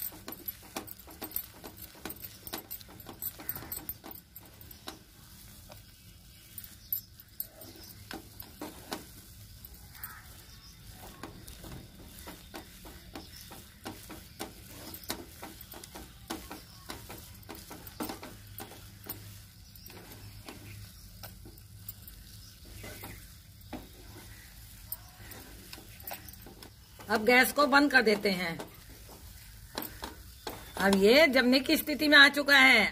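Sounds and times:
wooden spatula scraping a pan: 0.0s - 32.0s.

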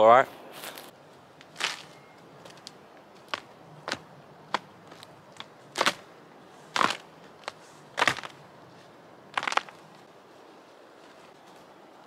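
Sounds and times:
dry wood cracking and snapping: 6.8s - 8.4s, 9.4s - 9.8s.

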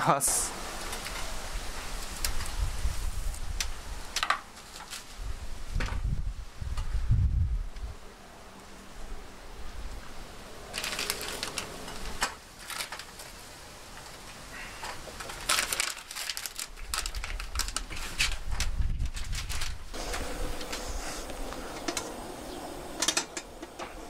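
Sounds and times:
plastic bag crinkling: 10.7s - 11.9s, 12.5s - 13.5s, 15.1s - 19.8s.

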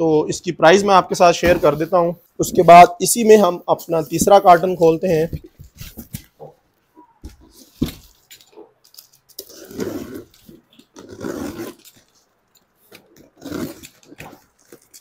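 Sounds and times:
cardboard rustling: 1.4s - 6.6s, 7.2s - 15.0s
box cutter slicing tape: 11.0s - 12.0s, 13.3s - 14.4s.

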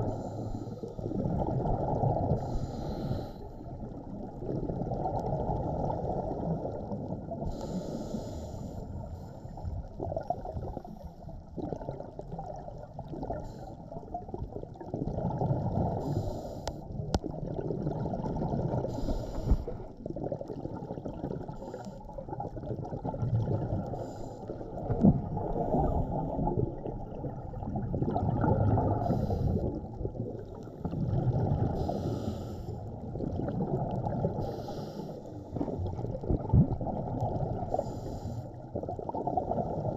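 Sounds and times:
exhaled bubbles rushing underwater: 0.0s - 39.9s
regulator inhalation hisses: 2.4s - 3.5s, 7.5s - 8.8s, 18.9s - 19.8s, 31.8s - 32.8s, 34.4s - 35.3s.

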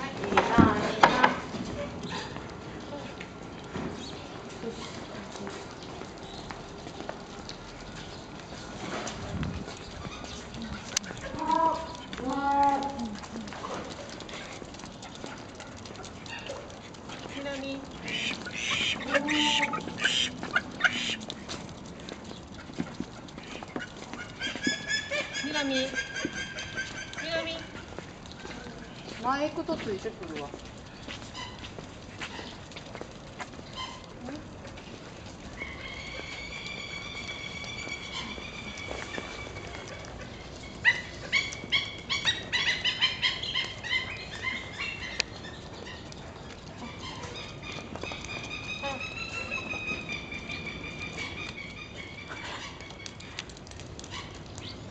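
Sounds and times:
penguin feet slapping on wet concrete: 0.0s - 54.9s
bird calling: 17.2s - 21.3s, 23.2s - 28.0s, 35.5s - 54.8s.

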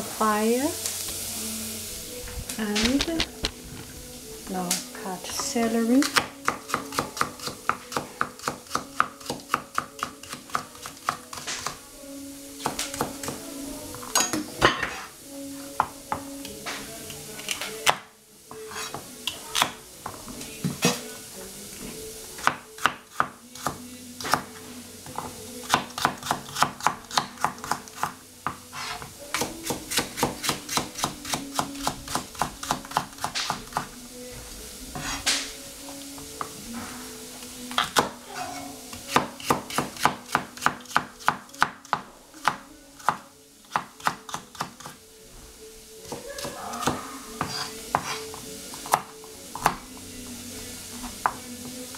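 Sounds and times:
knife chopping on cutting board: 46.1s - 49.8s.

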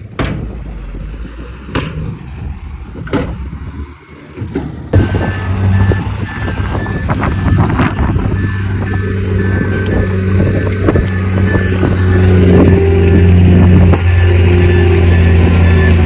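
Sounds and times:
diesel machinery running: 0.0s - 16.0s
sharp knocks: 0.1s - 0.6s, 3.0s - 3.4s
reversing alarm beeping: 5.0s - 16.0s.

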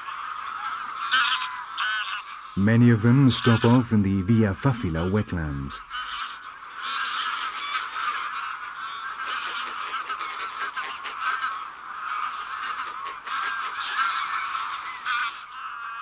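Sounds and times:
geese honking: 0.0s - 16.0s.

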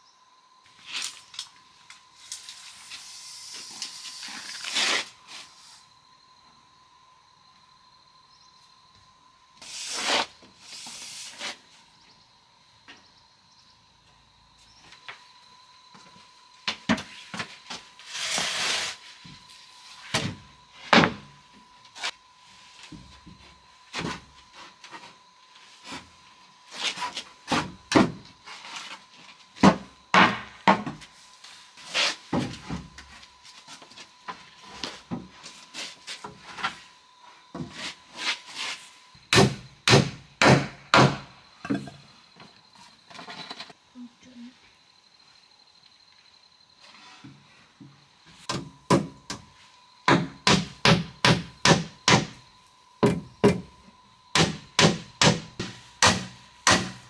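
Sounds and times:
wood knocking and thudding: 53.0s - 53.7s.

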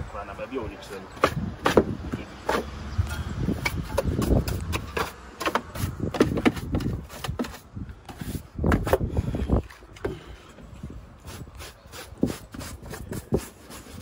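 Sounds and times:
wind on microphone: 1.2s - 14.0s
hand brush scrubbing: 11.2s - 14.0s.

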